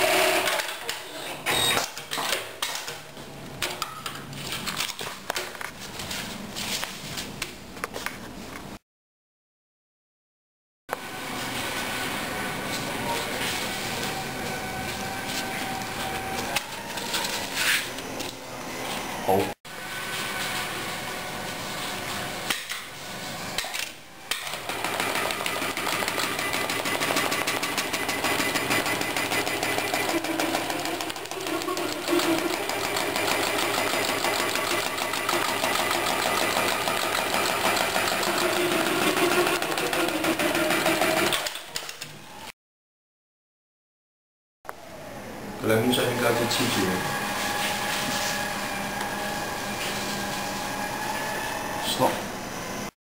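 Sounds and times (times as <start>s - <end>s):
sewing machine stitching: 24.3s - 41.9s.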